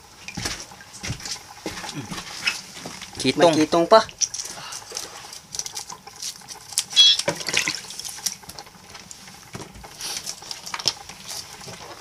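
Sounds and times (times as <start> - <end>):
high squeak: 7.0 - 7.3.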